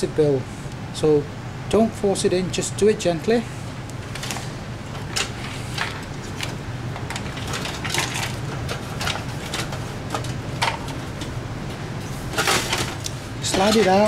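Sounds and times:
steady low hum: 0.0s - 14.0s
cables and computer case rattling: 5.0s - 11.4s, 12.3s - 14.0s.

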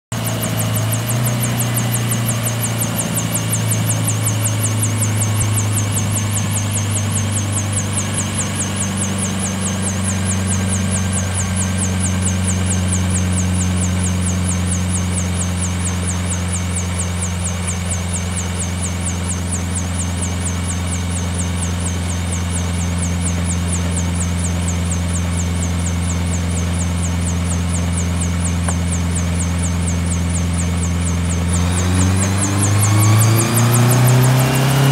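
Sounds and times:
helicopter engine drone: 0.1s - 34.9s.

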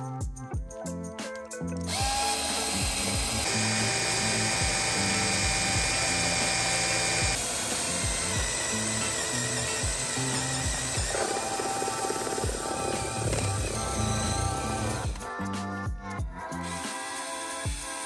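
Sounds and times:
background music with beat: 0.0s - 3.4s, 8.0s - 18.0s
power drill cutting metal: 1.9s - 15.4s, 16.6s - 18.0s.

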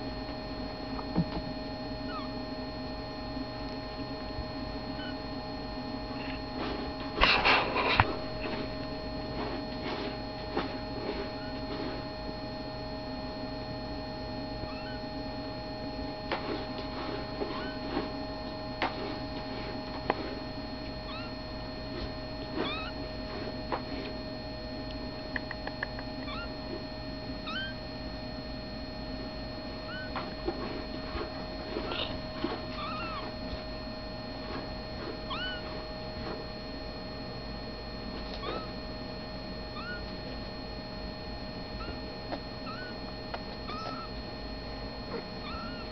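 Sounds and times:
steady electrical hum: 0.0s - 45.9s
kittens mewing: 2.1s - 2.3s, 5.0s - 5.2s, 11.3s - 11.7s, 14.7s - 15.1s, 17.4s - 17.9s, 21.1s - 21.4s, 22.5s - 23.0s, 25.5s - 26.6s, 27.4s - 27.8s, 29.9s - 30.2s, 31.8s - 33.4s, 35.3s - 35.8s, 38.4s - 38.8s, 39.7s - 40.2s, 41.8s - 42.0s, 42.6s - 43.0s, 43.7s - 44.2s, 45.1s - 45.9s.

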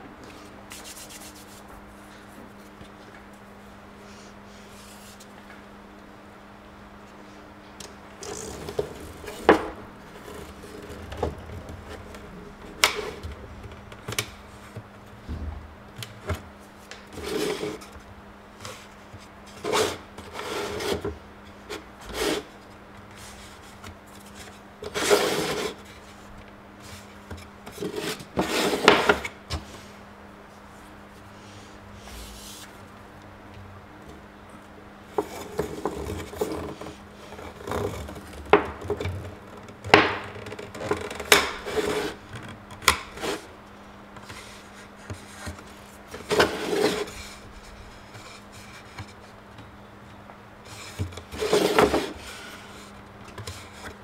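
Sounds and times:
hand scraping wooden tray: 16.2s - 18.0s, 18.6s - 29.8s, 35.1s - 43.6s, 44.2s - 49.4s, 50.6s - 54.0s.

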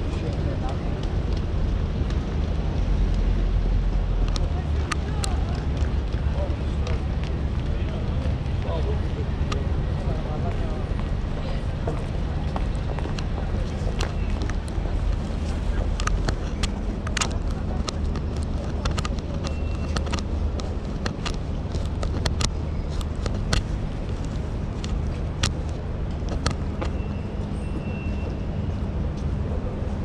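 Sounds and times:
low rumble of traffic: 0.0s - 30.0s
sharp clicks and taps: 15.8s - 27.0s
faint high beep: 26.9s - 28.4s.

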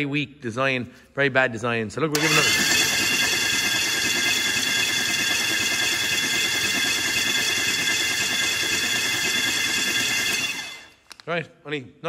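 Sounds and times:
starter motor cranking whine: 2.2s - 11.0s.

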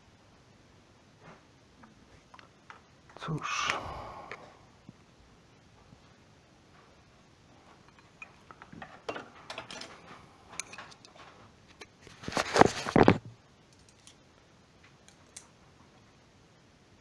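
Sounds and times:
knocks and scraping: 7.6s - 13.2s.

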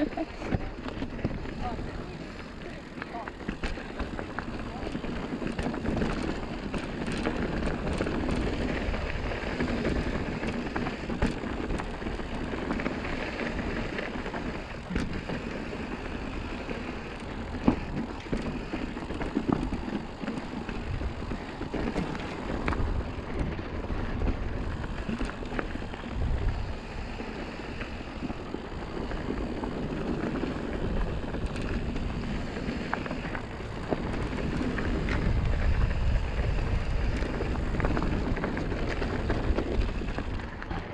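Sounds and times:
bike rattling: 0.0s - 40.9s
bike tyres crunching on dirt: 0.0s - 40.9s.

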